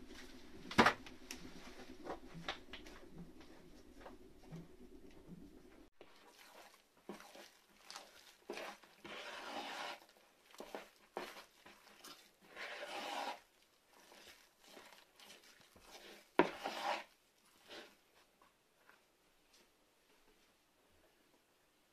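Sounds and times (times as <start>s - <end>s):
dough slapping bowl: 0.0s - 13.4s
hand kneading wet dough: 0.0s - 19.1s.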